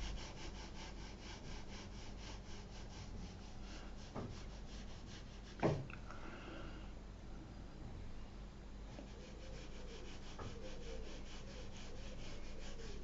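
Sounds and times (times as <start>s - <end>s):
paintbrush scratching on paper: 0.0s - 5.6s, 8.9s - 13.0s.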